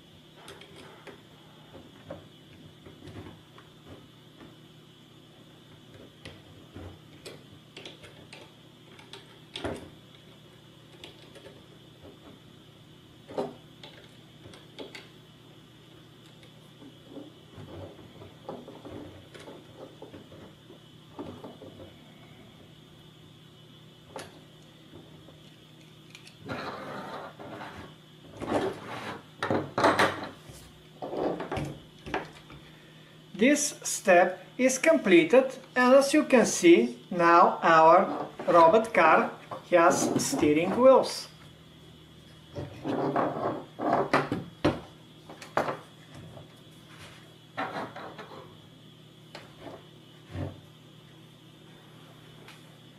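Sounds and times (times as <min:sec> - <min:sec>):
clattering and rubbing on tabletop: 0:16.8 - 0:22.0, 0:26.4 - 0:32.3, 0:38.0 - 0:38.7, 0:39.5 - 0:40.8, 0:42.5 - 0:44.4, 0:45.4 - 0:48.6.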